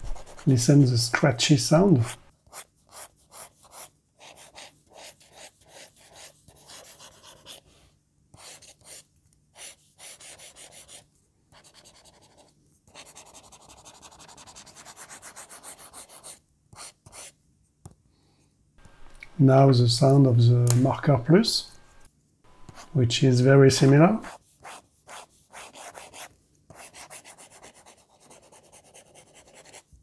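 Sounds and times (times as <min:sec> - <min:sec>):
stylus scratching on tablet screen: 0:00.0 - 0:00.9, 0:01.9 - 0:07.7, 0:08.4 - 0:09.0, 0:09.6 - 0:11.0, 0:11.6 - 0:17.3, 0:21.8 - 0:23.0, 0:23.8 - 0:29.9.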